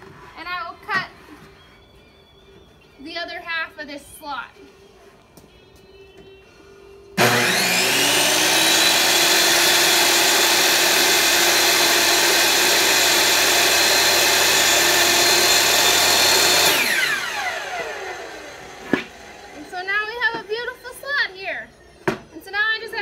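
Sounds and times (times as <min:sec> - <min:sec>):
table saw whine: 0:07.2 - 0:20.1.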